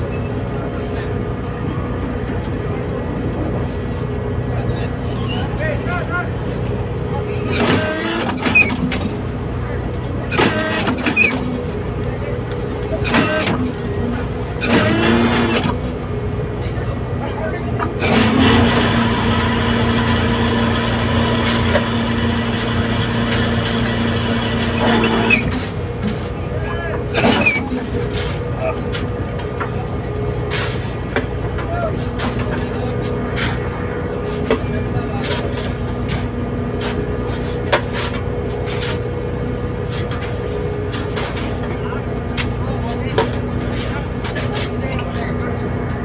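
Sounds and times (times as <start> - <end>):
boat engine drone: 0.0 - 30.4
deck machinery hum and hiss: 0.0 - 46.0
boat engine throbbing: 17.7 - 26.0.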